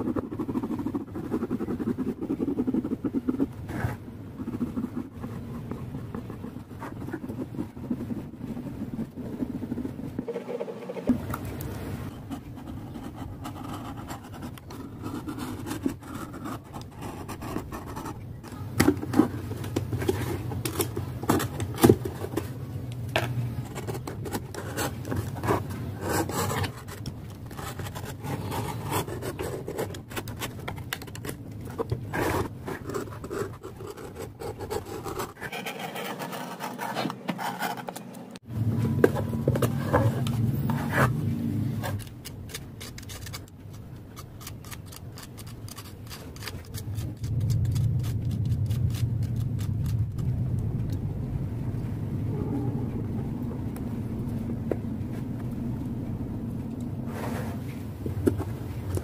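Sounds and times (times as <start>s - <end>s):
pen scratching on board: 0.0s - 8.2s, 32.1s - 38.1s.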